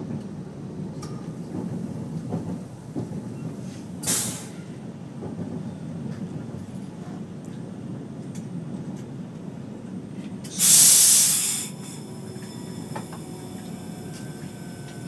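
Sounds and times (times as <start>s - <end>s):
train rumbling on rails: 0.0s - 15.0s
short sharp hiss: 4.0s - 4.6s, 10.5s - 12.0s.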